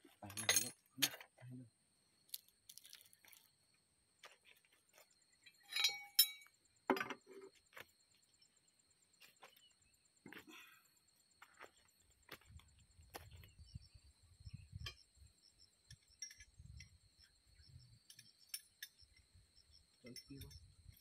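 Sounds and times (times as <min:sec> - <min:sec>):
hand tools clinking on steel: 0:00.2 - 0:01.3, 0:05.4 - 0:07.2, 0:15.9 - 0:17.0, 0:18.0 - 0:19.2, 0:20.0 - 0:21.0.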